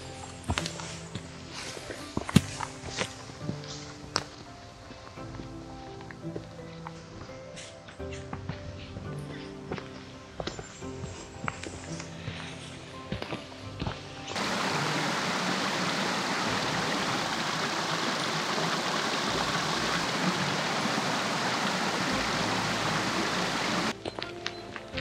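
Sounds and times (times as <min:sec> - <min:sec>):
background music: 0:00.0 - 0:25.0
stream rushing over stones: 0:14.4 - 0:24.0.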